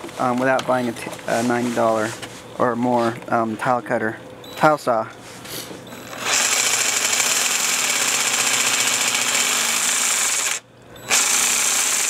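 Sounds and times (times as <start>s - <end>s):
jigsaw cutting tile: 6.1s - 12.0s.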